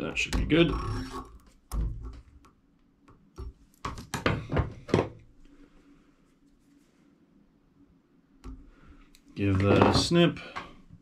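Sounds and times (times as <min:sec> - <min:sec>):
tools knocking and rustling: 0:09.6 - 0:10.7.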